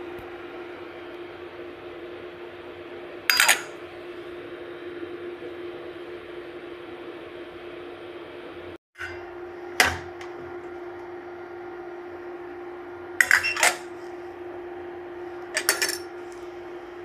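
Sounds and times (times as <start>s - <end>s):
steady hum: 0.0s - 17.0s
utensils clattering on steel plate: 3.3s - 3.7s, 13.2s - 13.9s, 15.6s - 16.1s.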